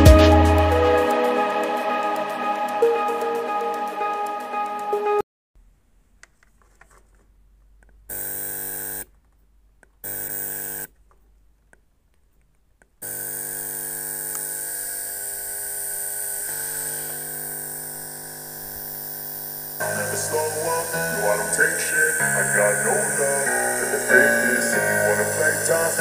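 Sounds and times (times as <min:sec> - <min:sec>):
amplifier electronic buzz: 0:08.1 - 0:09.1, 0:10.0 - 0:10.9, 0:13.0 - 0:26.0.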